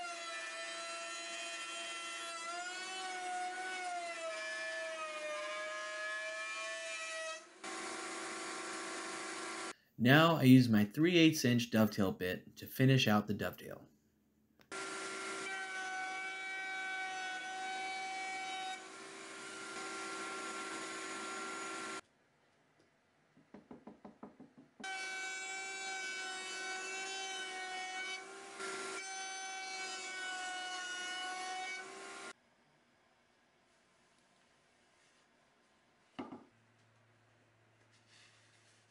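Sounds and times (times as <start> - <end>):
router motor whine: 7.6 - 9.7, 14.7 - 15.9, 18.7 - 22.0.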